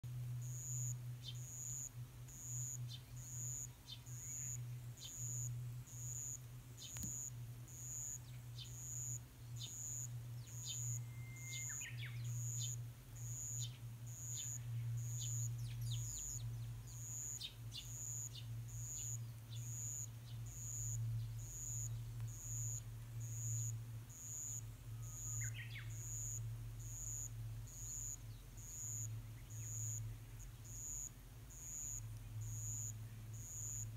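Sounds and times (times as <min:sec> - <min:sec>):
steady low hum: 0:00.0 - 0:33.9
sparrows chirping: 0:01.1 - 0:22.7, 0:23.4 - 0:33.8
high thin pulsing tone: 0:10.6 - 0:11.8.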